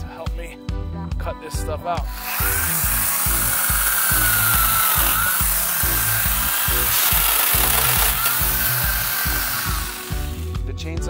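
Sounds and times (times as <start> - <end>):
background music with beat: 0.0 - 11.0
chainsaw cutting bamboo: 2.1 - 10.6.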